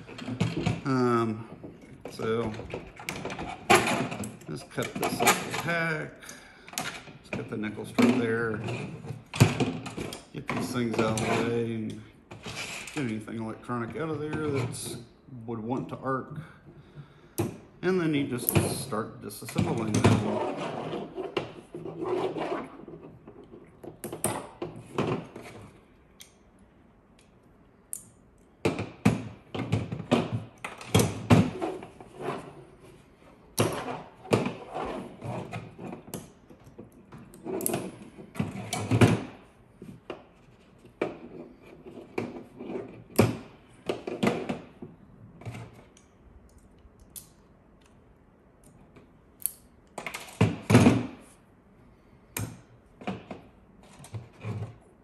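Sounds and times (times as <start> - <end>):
hand cutters snipping metal strip: 49.4 - 49.6.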